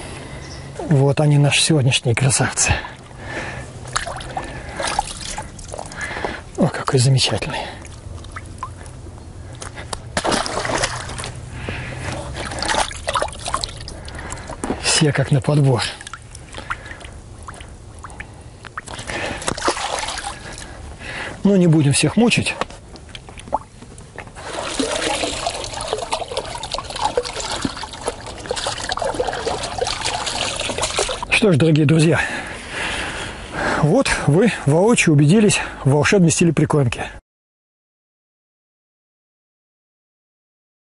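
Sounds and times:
water splashing and sloshing: 0:02.2 - 0:31.6.

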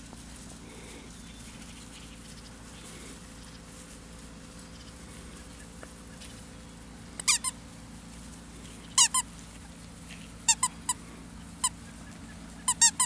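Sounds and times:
toy squeaker squeaks: 0:07.2 - 0:07.6, 0:09.0 - 0:09.2, 0:10.5 - 0:10.7, 0:12.7 - 0:13.0.

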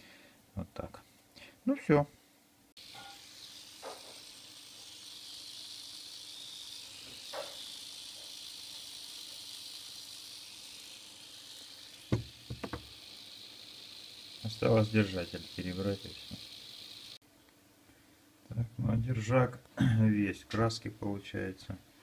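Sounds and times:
steady hiss: 0:02.8 - 0:17.2.

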